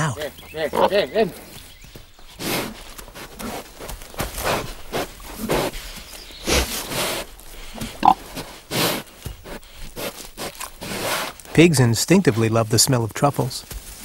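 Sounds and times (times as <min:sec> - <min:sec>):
pig snuffling and grunting: 0:02.2 - 0:13.0.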